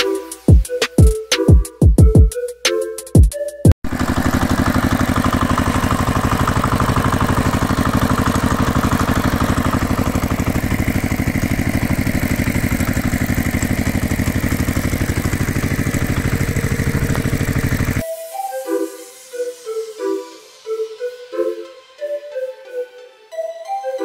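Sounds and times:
engine idling: 3.8s - 18.0s.

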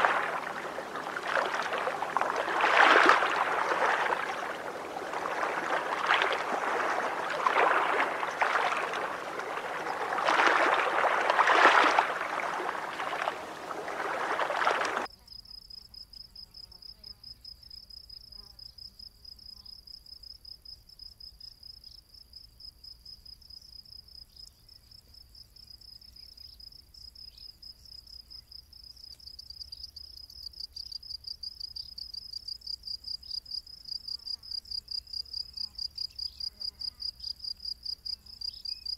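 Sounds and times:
water lapping: 0.0s - 15.1s
cricket trilling: 0.0s - 18.9s.

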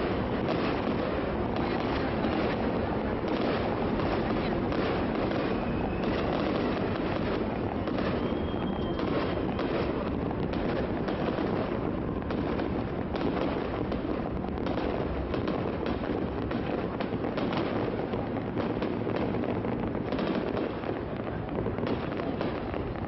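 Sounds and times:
fireworks crackling rush: 0.0s - 23.0s
fireworks popping and banging: 0.0s - 23.0s
whistling tones: 5.4s - 6.4s, 7.7s - 9.7s.

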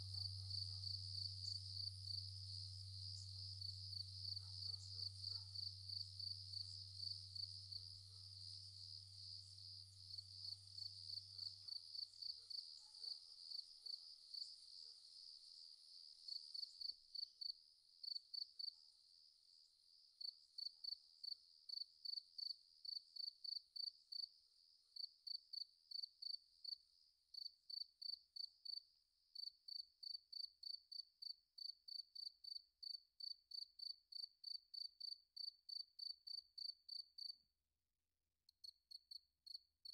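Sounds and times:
faint low hum: 0.0s - 15.6s
cricket chirping: 0.0s - 37.4s.

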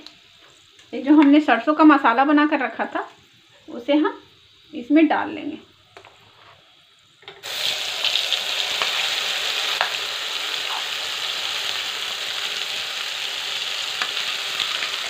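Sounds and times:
paste sizzling in hot oil: 6.1s - 15.0s.

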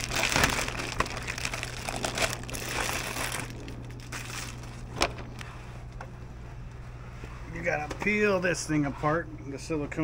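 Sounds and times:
plastic bag rustling: 0.0s - 5.4s.

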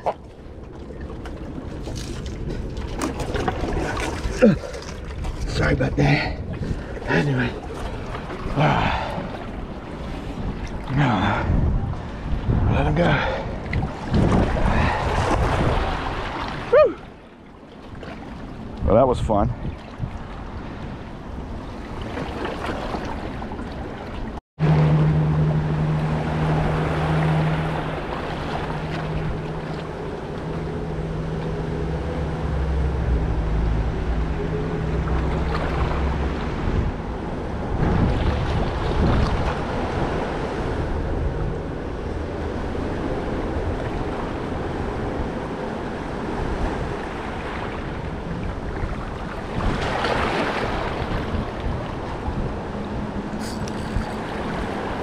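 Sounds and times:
boat engine humming: 0.0s - 12.6s, 20.2s - 55.0s
water noise: 0.0s - 55.0s
wind: 0.0s - 55.0s.

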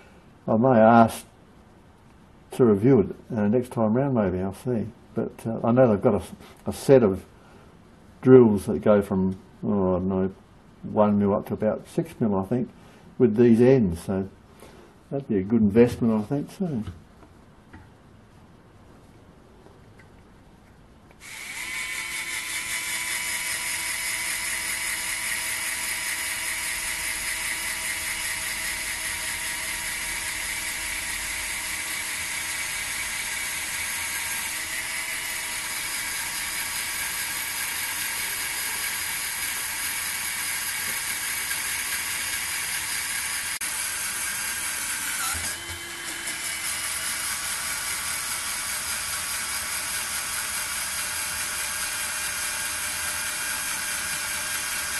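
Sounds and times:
electric screwdriver motor whine: 21.2s - 54.9s.

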